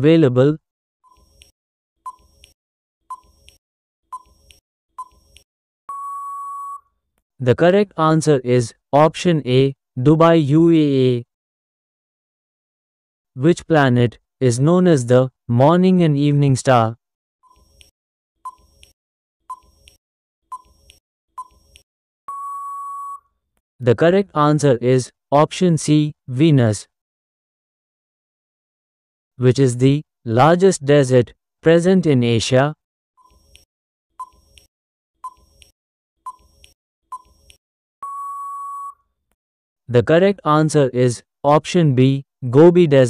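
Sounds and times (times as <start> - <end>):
soft timer ticks: 2.1 - 3.6, 33.2 - 35.7, 36.3 - 37.6
steady high beep: 5.9 - 6.8, 22.3 - 23.2, 38.0 - 39.0.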